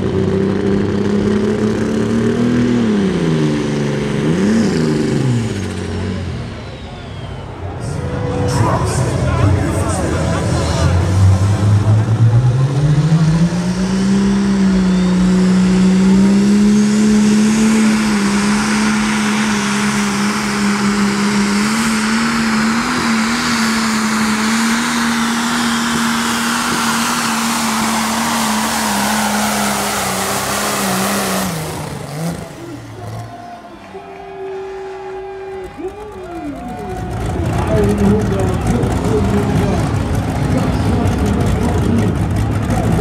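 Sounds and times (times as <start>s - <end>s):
diesel engine at full throttle: 0.0s - 43.0s.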